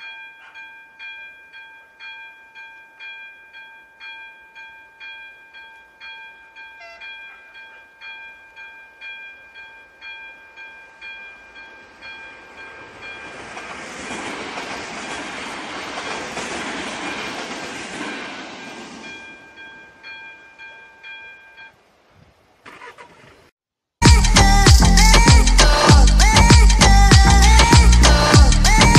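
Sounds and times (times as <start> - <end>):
electronic level crossing bell: 0.0 - 13.3, 19.1 - 21.8
train wheels rushing on rail: 11.2 - 20.1
loud music: 24.0 - 28.9.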